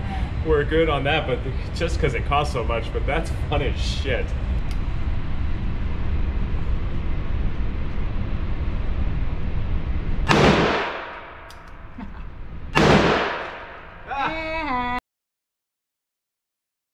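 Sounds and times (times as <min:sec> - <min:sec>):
low rumble: 0:00.0 - 0:14.1
gunshots ringing indoors: 0:10.2 - 0:12.0, 0:12.7 - 0:14.0.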